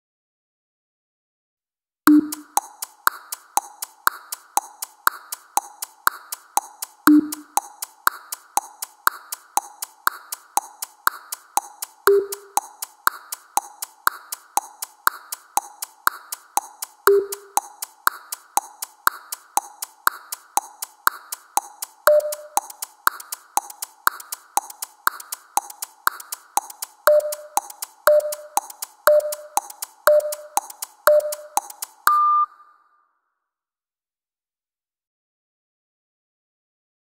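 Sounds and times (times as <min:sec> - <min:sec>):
clock tick-tock: 0:02.1 - 0:32.6
short low beep: 0:32.1 - 0:32.8.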